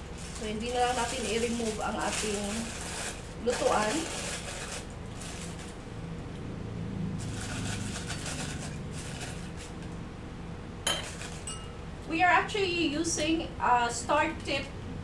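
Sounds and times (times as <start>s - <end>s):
plastic bag rustling and crinkling: 0.0s - 5.9s, 7.2s - 9.8s, 11.0s - 11.5s.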